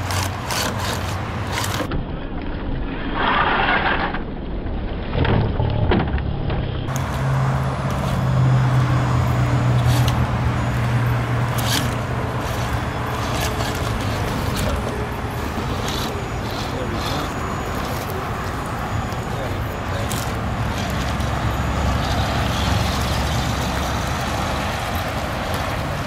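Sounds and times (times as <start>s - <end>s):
electric motor humming: 6.9s - 26.0s.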